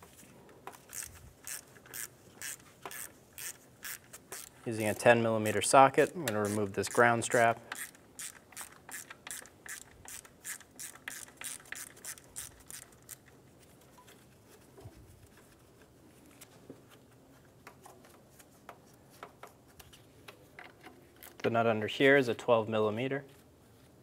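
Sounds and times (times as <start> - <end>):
socket ratchet clicking: 0.7 - 4.6, 7.6 - 13.3
faint clicks of parts handled: 7.7 - 21.6.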